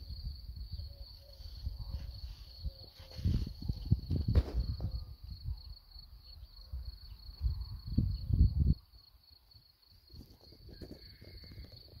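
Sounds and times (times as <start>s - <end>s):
insect trilling chirp: 0.0s - 12.0s
wind buffeting microphone: 1.6s - 5.8s, 6.8s - 8.9s, 10.1s - 12.0s.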